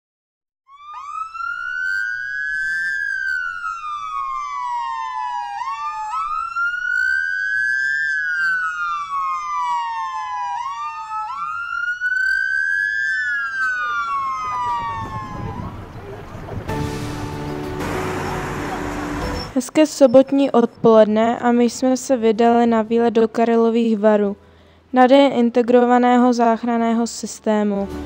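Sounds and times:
wailing siren: 0:00.7 - 0:20.9.

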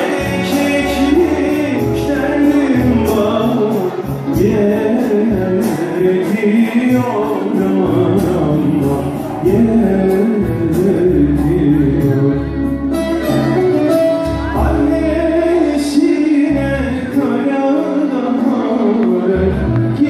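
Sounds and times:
man singing: 0:00.0 - 0:20.0
folk music on violin and keyboard: 0:10.3 - 0:20.0.

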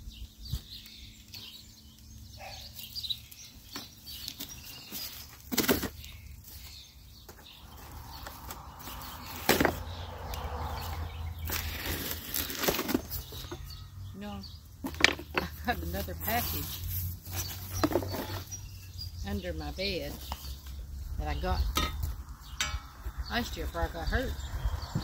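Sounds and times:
cardboard and tape rustling: 0:02.7 - 0:10.0, 0:10.8 - 0:13.8, 0:14.8 - 0:18.9
cardboard snapping: 0:03.7 - 0:06.2.

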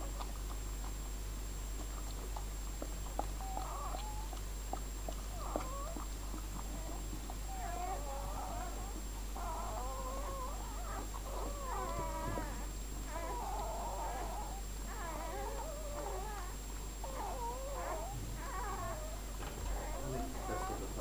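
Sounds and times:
puppies squealing: 0:03.4 - 0:04.3, 0:06.7 - 0:21.0.

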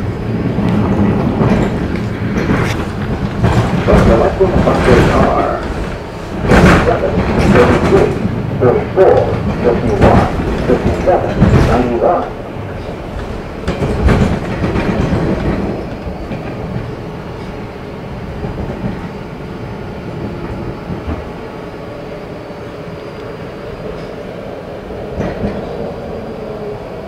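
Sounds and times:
subway car wheels rumbling on rail: 0:00.0 - 0:27.0.

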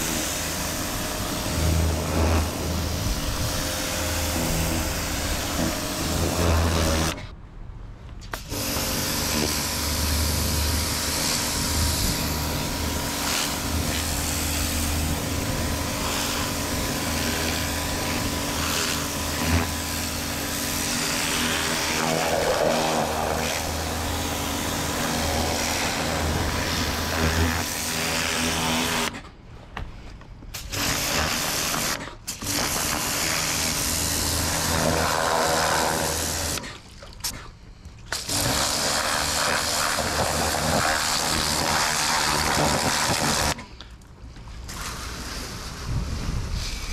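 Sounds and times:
pressure washer water jet: 0:00.0 - 0:07.2, 0:08.3 - 0:29.1, 0:30.6 - 0:37.4, 0:38.1 - 0:43.6.

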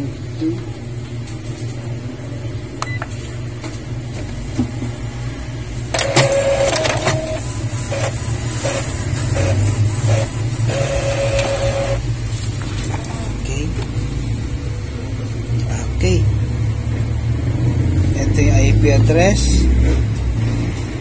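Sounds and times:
printer motor whine: 0:05.9 - 0:12.1.

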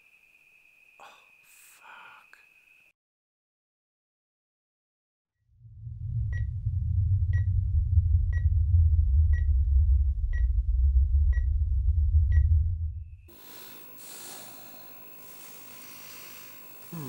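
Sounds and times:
deep low rumble: 0:05.4 - 0:13.4.

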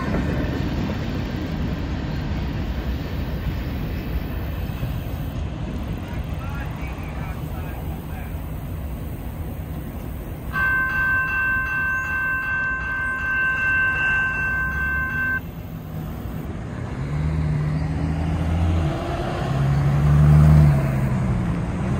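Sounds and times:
railroad crossing bell dinging: 0:09.6 - 0:16.5
car engines pulling away: 0:16.0 - 0:21.9.

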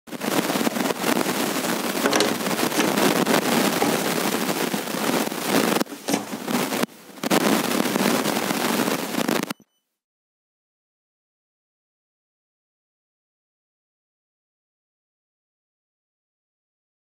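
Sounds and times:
harsh crackling distortion: 0:00.1 - 0:09.6.

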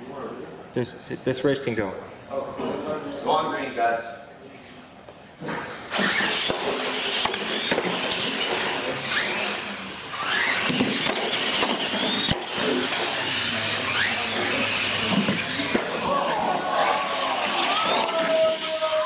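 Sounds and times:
electric motors whining: 0:05.9 - 0:19.0.

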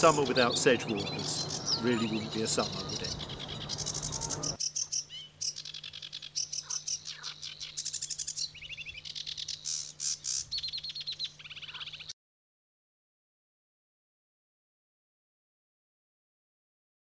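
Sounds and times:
warbler singing: 0:00.0 - 0:12.2.

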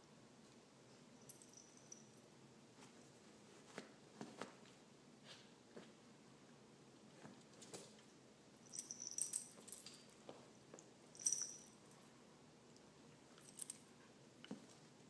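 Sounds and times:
metal tags jingling: 0:08.6 - 0:10.1, 0:11.1 - 0:12.0.

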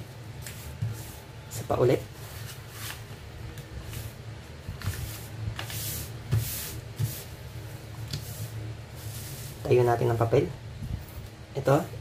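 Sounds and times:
paper rustling on a wooden table: 0:02.1 - 0:03.2.

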